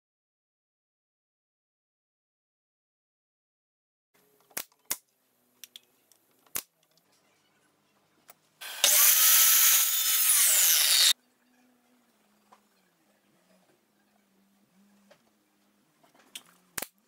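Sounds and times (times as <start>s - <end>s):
mitre saw cutting wood: 8.6s - 11.2s.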